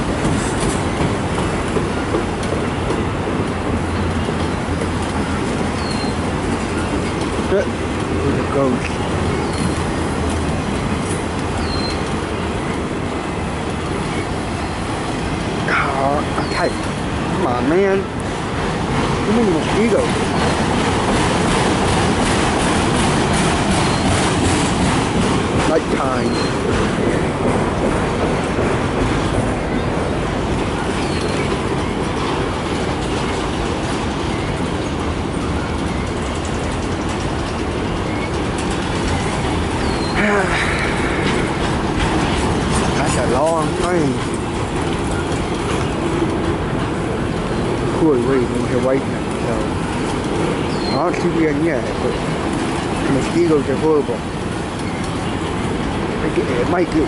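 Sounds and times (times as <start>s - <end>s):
train wheels on rails: 0.0s - 57.0s.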